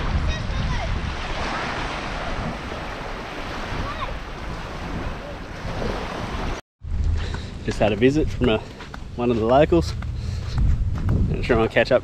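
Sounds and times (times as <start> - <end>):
small waves washing on beach: 0.0 - 6.6
wind buffeting microphone: 0.0 - 12.0.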